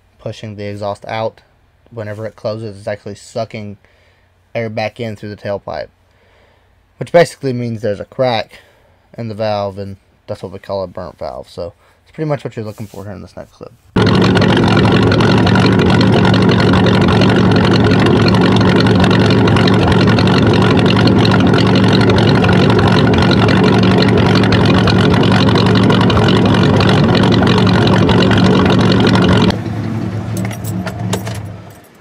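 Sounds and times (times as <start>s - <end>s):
exhaust pulsing against a rag: 14.0s - 29.6s
car engine idling: 14.0s - 32.0s.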